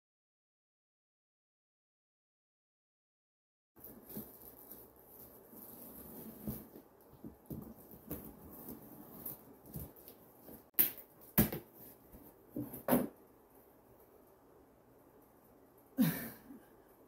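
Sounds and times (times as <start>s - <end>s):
cardboard scraping and rustling: 3.8s - 10.7s.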